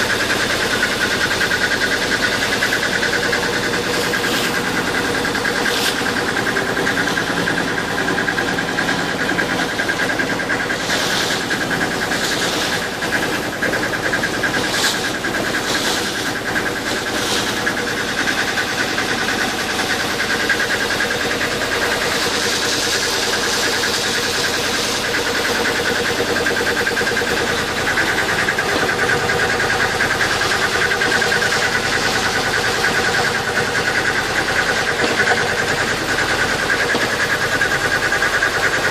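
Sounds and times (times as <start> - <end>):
boat engine running: 0.0 - 38.9.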